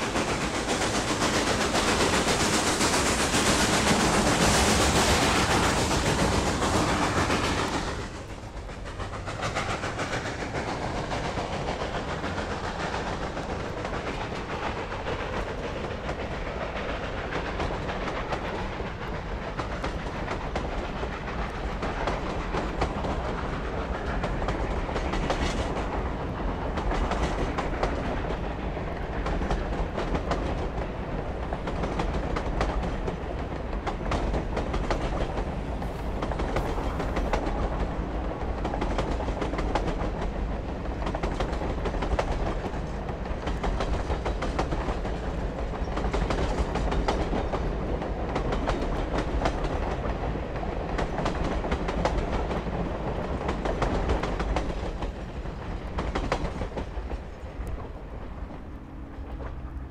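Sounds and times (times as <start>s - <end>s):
train cars rumbling on track: 0.0s - 59.9s
wheels clicking over rail joints: 0.0s - 59.9s.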